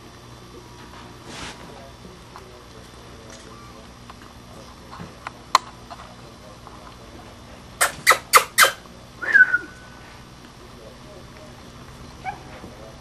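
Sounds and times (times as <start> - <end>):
baby mink squeaking: 7.8 - 8.8
sharp click: 7.8 - 8.8.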